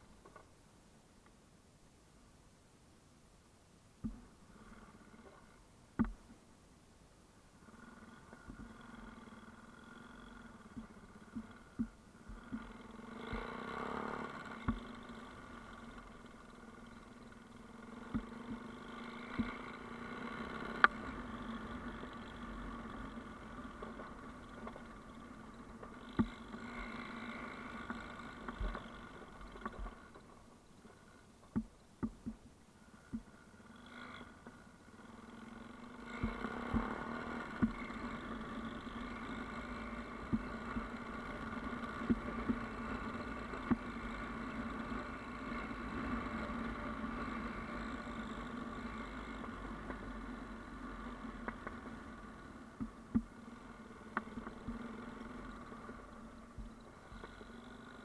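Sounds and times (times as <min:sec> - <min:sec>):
motorcycle engine running: 0:04.0 - 0:06.3, 0:07.5 - 0:58.0
sharp knocks and clicks: 0:06.0 - 0:06.3, 0:10.7 - 0:12.7, 0:25.8 - 0:26.5, 0:31.4 - 0:32.5, 0:33.1 - 0:33.3, 0:43.6 - 0:43.9, 0:52.8 - 0:53.3.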